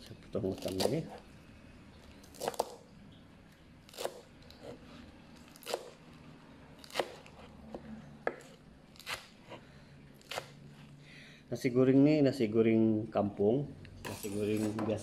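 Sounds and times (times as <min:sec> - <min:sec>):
knife chopping vegetables on board: 0:03.9 - 0:04.8, 0:05.4 - 0:06.0, 0:06.8 - 0:09.6.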